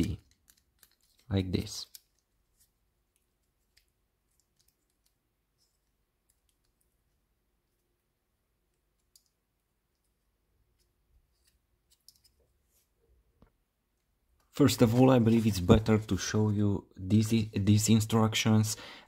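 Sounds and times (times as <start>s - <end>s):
small plastic clicks: 0.0s - 2.3s, 8.7s - 12.4s.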